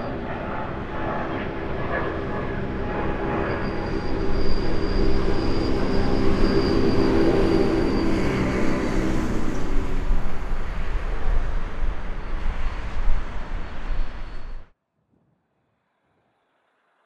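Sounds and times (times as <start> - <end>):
jet engine rumble and whine: 0.0 - 14.7.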